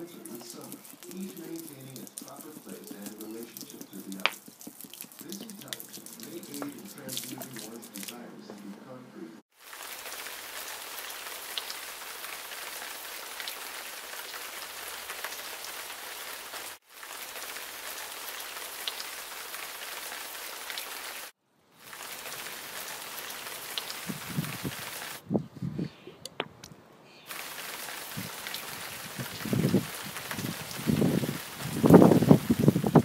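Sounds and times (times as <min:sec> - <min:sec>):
liquid spattering on concrete: 0:00.0 - 0:08.2.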